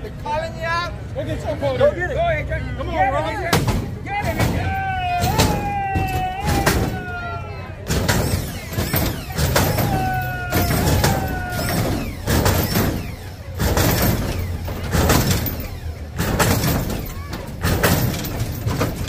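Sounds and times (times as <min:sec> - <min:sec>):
crowd voices: 0:00.0 - 0:19.0
hydraulics surging: 0:03.2 - 0:19.0
whining tone: 0:04.3 - 0:19.0.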